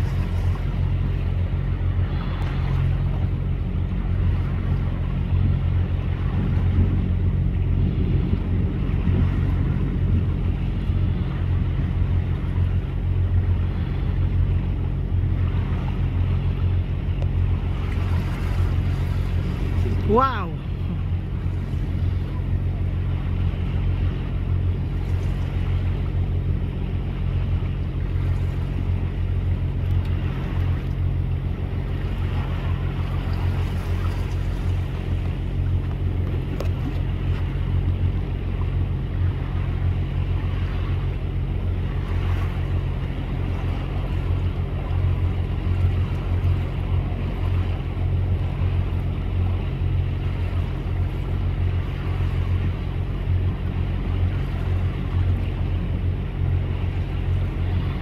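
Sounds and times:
motorboat engine humming: 0.0 - 58.0
water noise: 0.0 - 58.0
wind: 0.0 - 58.0.

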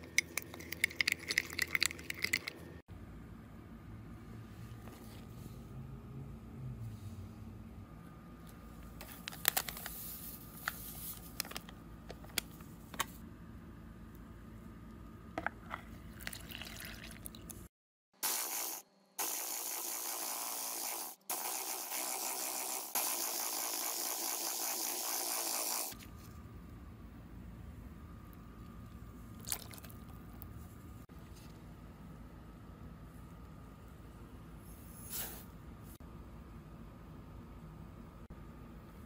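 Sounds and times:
electric hand mixer whirring: 18.2 - 26.0.

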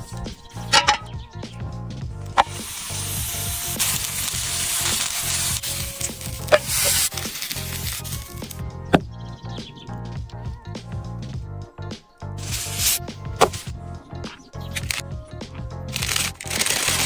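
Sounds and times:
meat sizzling on hot plate: 2.4 - 8.5.

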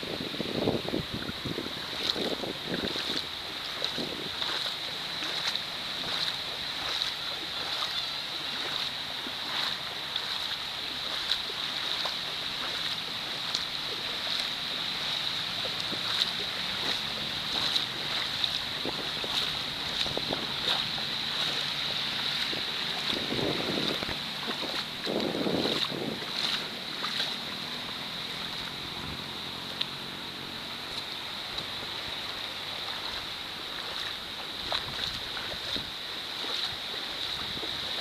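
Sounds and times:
small waves washing on sand: 0.0 - 38.0
water splashing and fizzing: 0.0 - 38.0.

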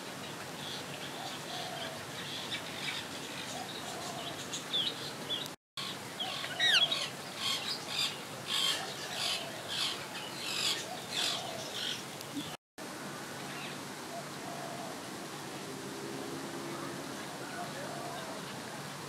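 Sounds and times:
birds chirping: 0.2 - 12.6.

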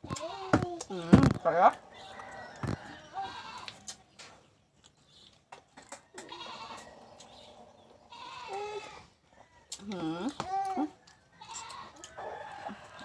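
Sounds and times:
goat bleating: 0.0 - 0.8, 3.2 - 3.8, 6.2 - 6.9, 8.1 - 9.1, 11.4 - 12.0.

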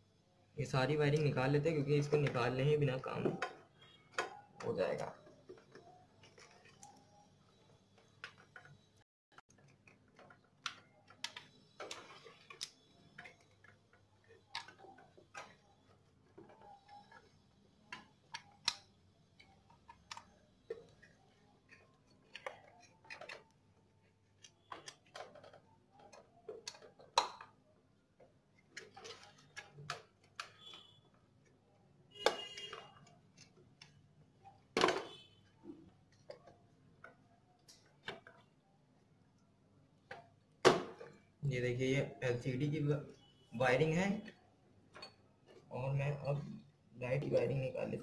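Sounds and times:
plastic connectors clicking: 17.9 - 23.6.

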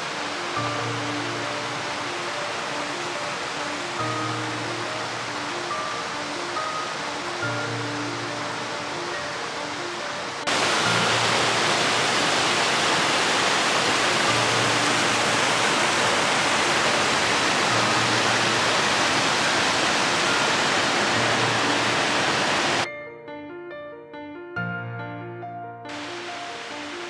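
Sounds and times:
stream rushing over rocks: 0.0 - 22.9, 25.9 - 27.0.

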